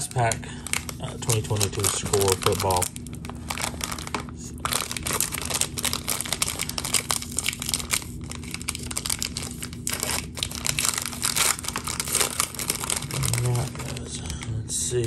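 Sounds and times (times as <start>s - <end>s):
plastic wrapper tearing and crinkling: 0.0s - 14.5s.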